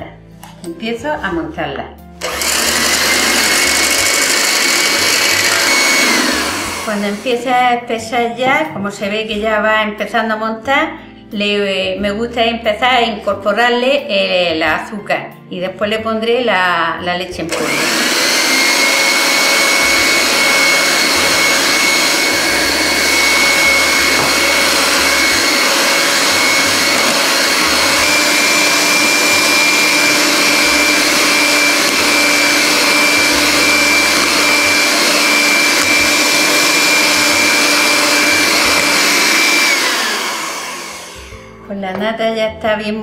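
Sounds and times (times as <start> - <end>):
electric hand mixer whipping cream: 2.2 - 8.0, 17.5 - 41.4.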